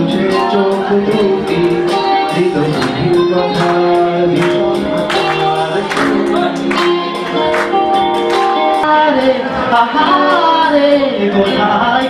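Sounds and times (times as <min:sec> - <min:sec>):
man singing into microphone: 0:00.0 - 0:07.5, 0:08.8 - 0:12.0
electric guitar: 0:00.0 - 0:12.0
keyboard: 0:00.0 - 0:12.0
percussion hits: 0:02.7 - 0:08.8.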